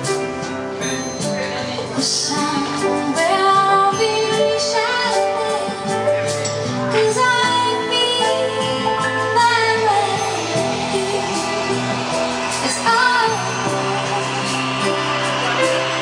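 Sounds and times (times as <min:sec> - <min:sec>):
piano chords: 0:00.0 - 0:16.0
woman singing: 0:01.8 - 0:06.3, 0:06.9 - 0:14.0.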